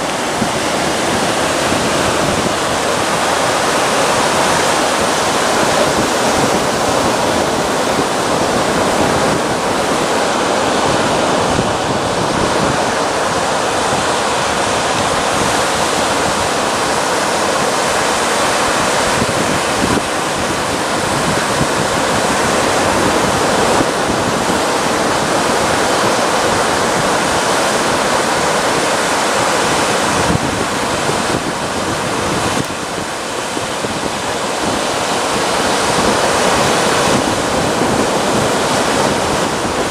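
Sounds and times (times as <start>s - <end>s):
surf washing over reef: 0.0s - 39.9s.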